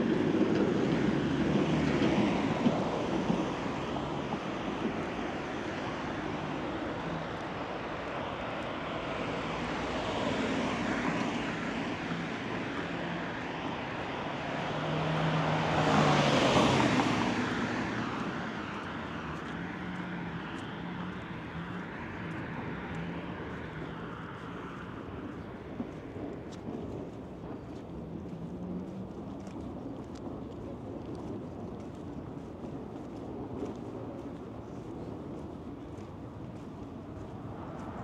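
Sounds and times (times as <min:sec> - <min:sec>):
street traffic: 0:00.0 - 0:38.0
vehicle passing close by: 0:09.3 - 0:25.2.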